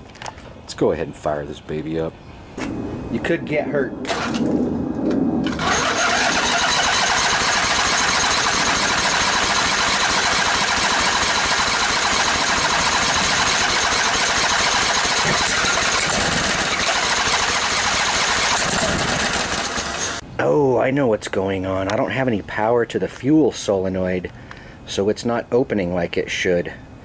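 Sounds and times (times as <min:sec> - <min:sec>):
engine cranking on starter: 0:04.1 - 0:04.5, 0:05.4 - 0:20.2.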